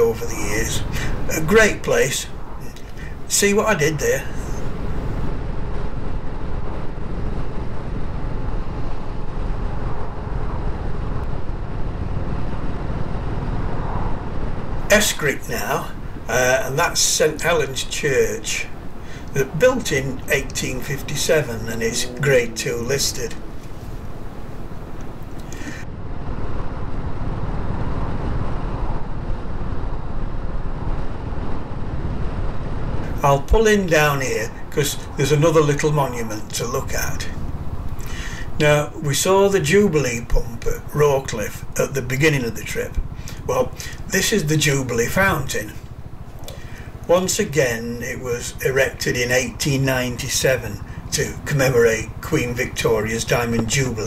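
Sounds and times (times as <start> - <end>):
wind noise on microphone: 4.1 - 15.0, 18.5 - 35.2, 37.0 - 38.6
motorcycle engine cruising: 18.5 - 33.3, 36.8 - 38.5, 42.6 - 54.0.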